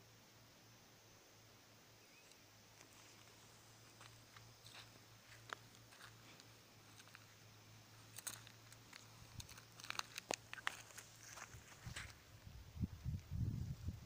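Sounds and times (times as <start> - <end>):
low steady hum: 0.0 - 14.0
clicks and crunches on gravel: 2.7 - 12.4.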